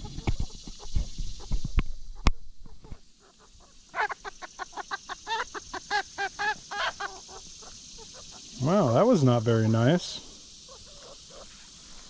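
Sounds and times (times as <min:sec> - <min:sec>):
chicken squawking: 0:02.8 - 0:09.4, 0:10.6 - 0:11.6.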